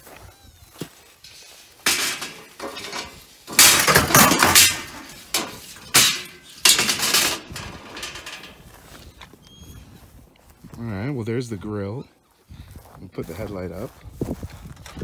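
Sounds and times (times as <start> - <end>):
metal grille rattling and scraping: 0.9 - 9.2.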